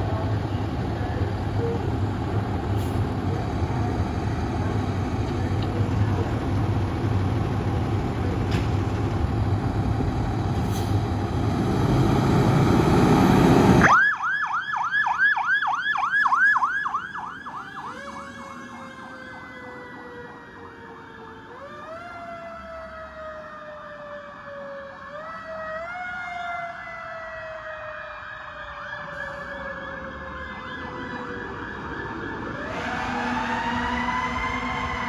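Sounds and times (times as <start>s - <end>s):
fire engine siren: 0.0s - 35.0s
louder siren wail: 13.6s - 35.0s.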